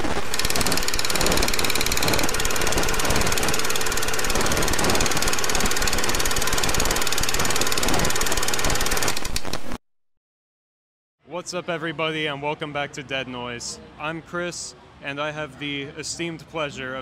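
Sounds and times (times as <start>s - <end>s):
harsh static-like rattling noise: 0.0s - 9.8s.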